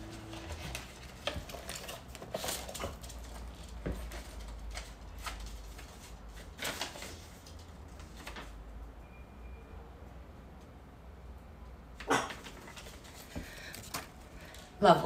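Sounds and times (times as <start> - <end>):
paper clicks and rustles: 0.0 - 8.6, 12.3 - 14.7.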